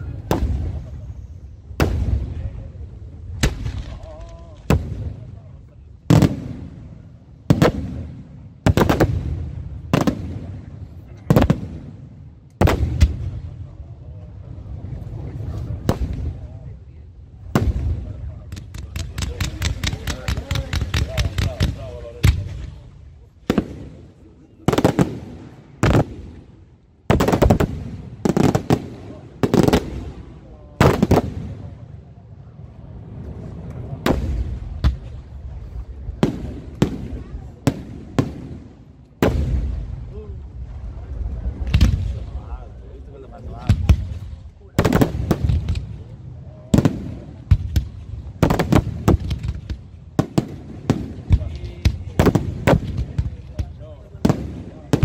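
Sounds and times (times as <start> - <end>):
low rumble: 31.5 - 38.2, 38.8 - 48.5.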